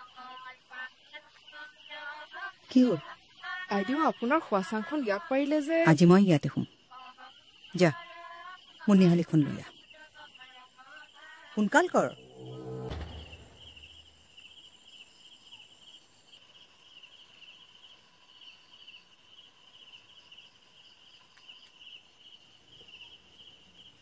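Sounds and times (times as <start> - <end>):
crickets chirping: 0.0 - 24.0
low rumble: 11.9 - 14.2.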